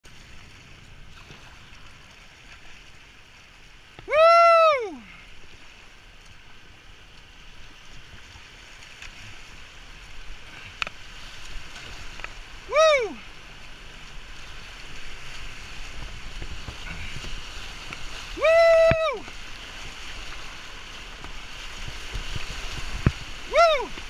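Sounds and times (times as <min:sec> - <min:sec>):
person whooping: 0:04.0 - 0:05.1, 0:12.6 - 0:13.3, 0:18.3 - 0:19.3, 0:23.4 - 0:24.0
whitewater rapids rushing: 0:04.0 - 0:05.2, 0:11.4 - 0:24.0.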